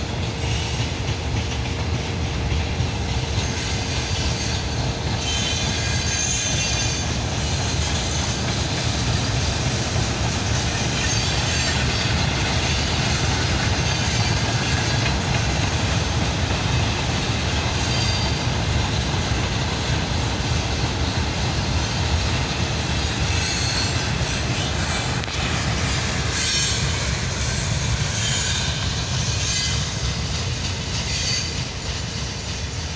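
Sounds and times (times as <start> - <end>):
train wheels rumbling on rails: 0.0 - 32.9
faint high wheel squeals: 3.4 - 8.5, 10.8 - 15.0, 17.8 - 18.5, 23.2 - 30.2, 30.9 - 32.8.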